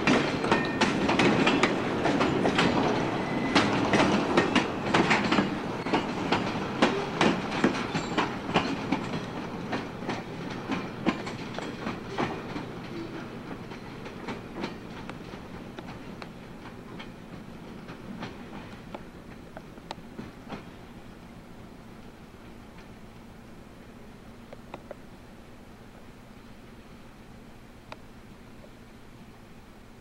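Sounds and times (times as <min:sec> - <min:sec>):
train wheels clacking over rail joints: 0:00.0 - 0:21.0
freight cars rumbling: 0:00.0 - 0:28.2.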